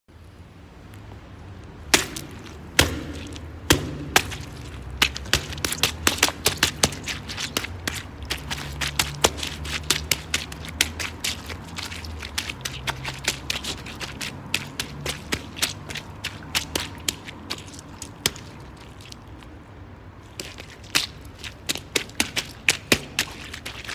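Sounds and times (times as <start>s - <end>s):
sneakers crushing oranges: 1.9s - 19.6s.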